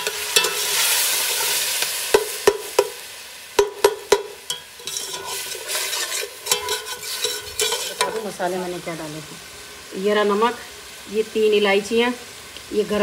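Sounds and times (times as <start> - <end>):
food sizzling in hot oil: 0.0 - 13.0
metal spoon knocking against pot: 3.6 - 5.2.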